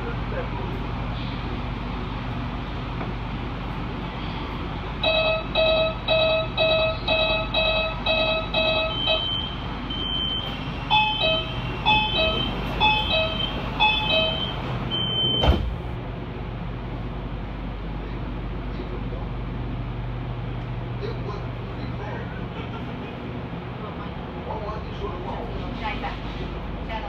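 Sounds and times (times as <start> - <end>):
train hum: 0.0 - 27.0
train door warning beeps: 5.0 - 15.7
train doors shutting knock: 10.4 - 16.0.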